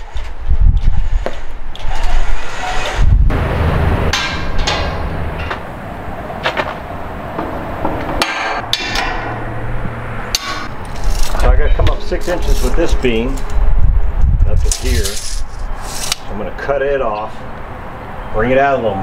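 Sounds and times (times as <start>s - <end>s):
metal jack clanking: 4.1s - 5.6s, 7.4s - 9.5s, 10.2s - 13.6s, 14.6s - 16.3s.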